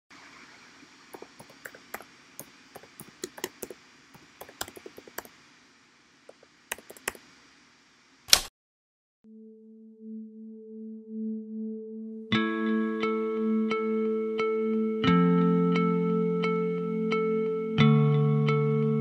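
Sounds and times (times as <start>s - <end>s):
keyboard key clicks: 6.3s - 7.2s.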